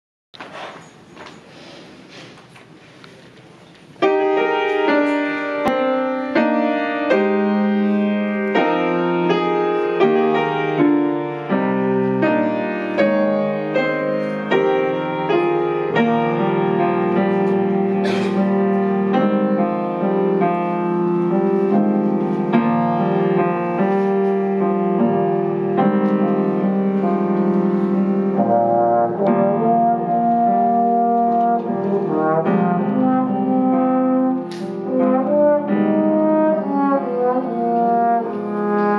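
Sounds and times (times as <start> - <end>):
piano accompaniment: 3.8 - 38.9
trombone melody: 4.0 - 38.9.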